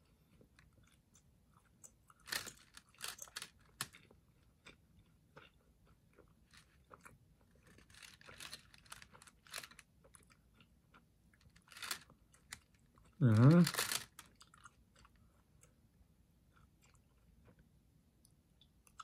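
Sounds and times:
person chewing with wet smacks: 3.9 - 7.8, 16.5 - 19.0.

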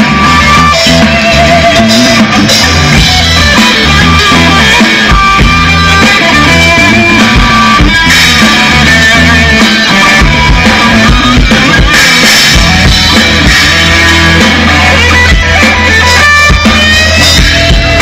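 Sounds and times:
live rock band playing: 0.0 - 18.0
low bass notes: 0.0 - 18.0.

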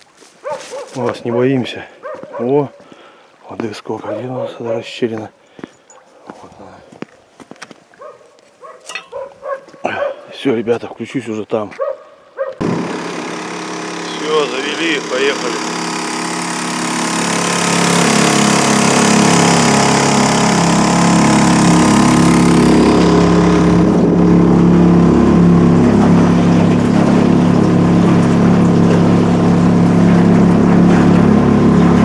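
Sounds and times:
outboard motor running: 12.6 - 32.0.

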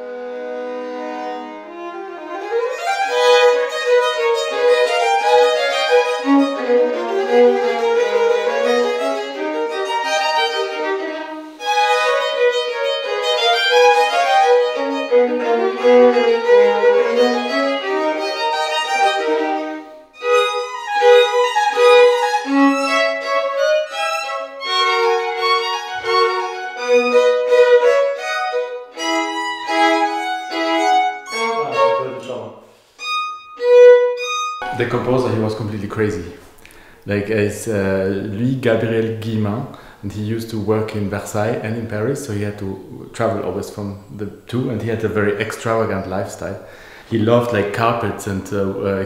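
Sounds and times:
two violins playing: 0.0 - 36.3.

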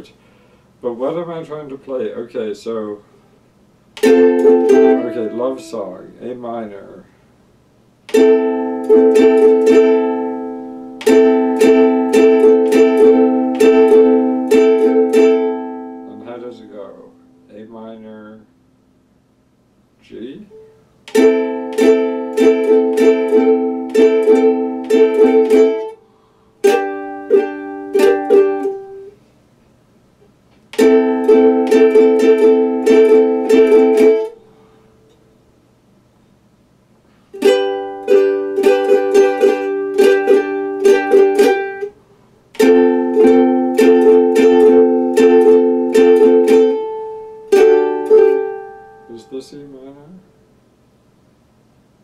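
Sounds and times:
mandolin strumming chords: 4.0 - 6.8, 8.1 - 18.1, 20.5 - 26.0, 26.6 - 29.2, 30.7 - 34.4, 37.4 - 42.0, 42.6 - 49.8.

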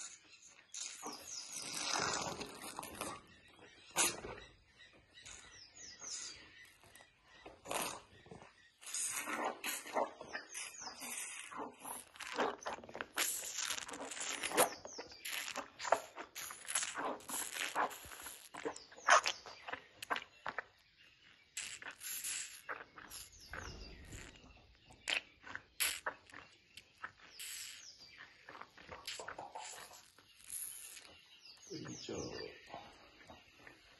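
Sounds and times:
elephant calf sucking bottle: 0.0 - 3.3, 4.0 - 4.5, 7.5 - 20.7, 21.5 - 31.3.

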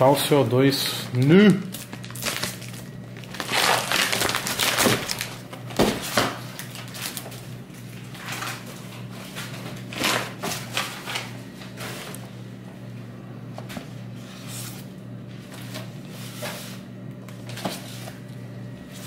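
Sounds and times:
paper rustling and crinkling: 1.1 - 12.2.

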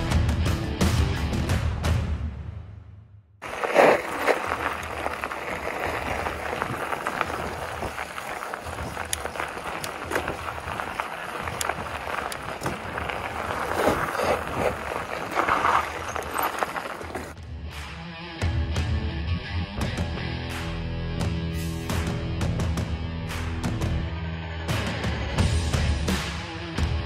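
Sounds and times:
bike rattling: 3.4 - 17.4
tyres crunching over gravel: 3.4 - 17.4
wind on microphone: 4.4 - 16.9.

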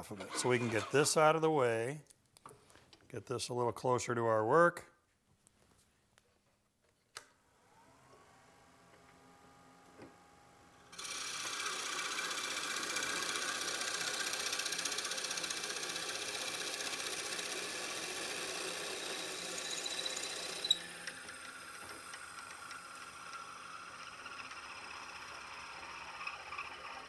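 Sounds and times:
drill bit cutting wood on lathe: 11.0 - 27.0
lathe running: 11.0 - 27.0.

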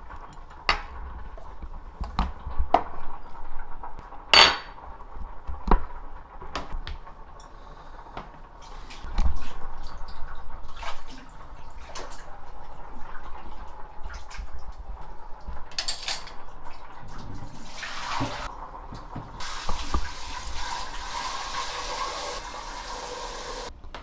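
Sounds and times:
running water: 8.6 - 23.7
water dripping: 9.1 - 15.1.

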